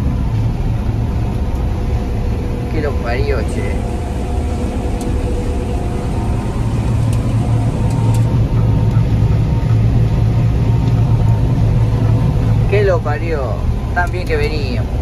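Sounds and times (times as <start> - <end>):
combine harvester drone: 0.0 - 15.0
mechanical hum: 0.0 - 15.0.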